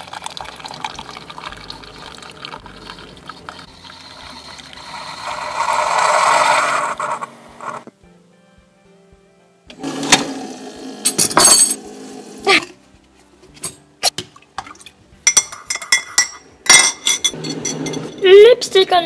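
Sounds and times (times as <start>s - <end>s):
spoon clinking in ceramic mug: 15.3s - 18.2s.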